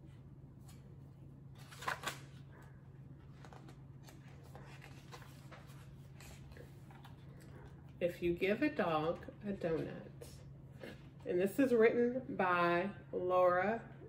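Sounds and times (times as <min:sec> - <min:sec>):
book pages turning: 0:00.6 - 0:02.5, 0:03.1 - 0:07.8.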